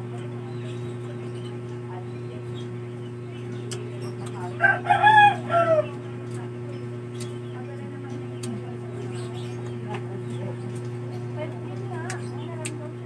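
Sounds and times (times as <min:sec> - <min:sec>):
steady low hum: 0:00.0 - 0:13.0
rooster crowing: 0:04.6 - 0:06.0.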